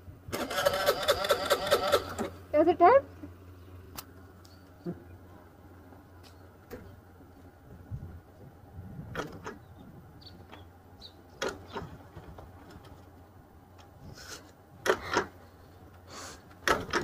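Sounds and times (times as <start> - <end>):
low steady hum: 0.0 - 17.0
scooter kick-start clattering: 0.3 - 2.4, 11.4 - 13.0, 14.8 - 15.4, 16.6 - 17.0.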